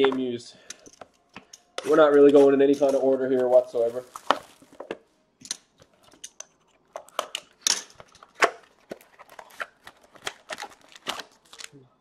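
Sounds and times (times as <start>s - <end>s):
cardboard box being opened: 3.4s - 4.8s.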